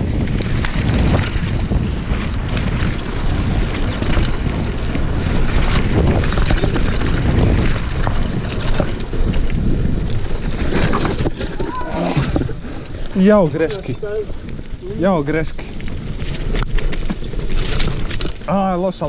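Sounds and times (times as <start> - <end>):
bike clicking and rattling: 0.0 - 19.0
tyres rumbling on dirt: 0.0 - 19.0
wind buffeting microphone: 0.0 - 19.0.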